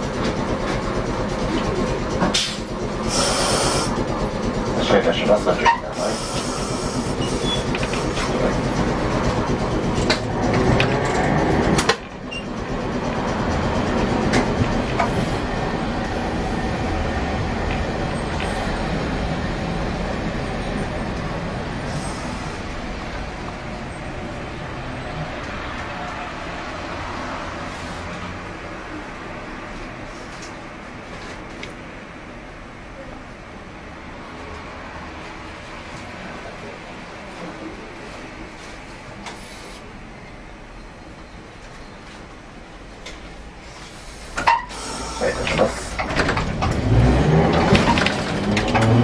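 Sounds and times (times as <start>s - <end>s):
streetcar rumbling on rails: 0.0s - 49.0s
air hiss: 3.1s - 4.0s, 6.0s - 7.2s.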